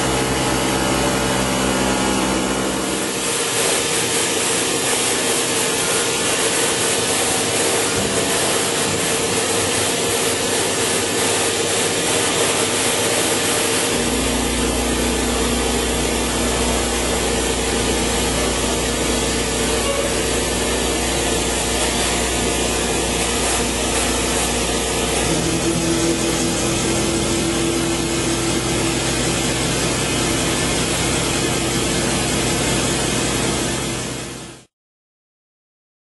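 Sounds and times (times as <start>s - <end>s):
deep machine drone: 0.0s - 3.6s, 11.6s - 34.4s
machine hum: 0.0s - 34.6s.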